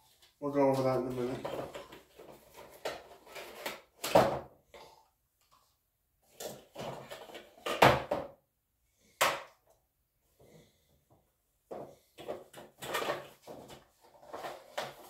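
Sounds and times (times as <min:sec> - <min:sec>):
cardboard and plastic rustling: 0:00.1 - 0:04.2, 0:06.3 - 0:08.1, 0:11.7 - 0:15.0.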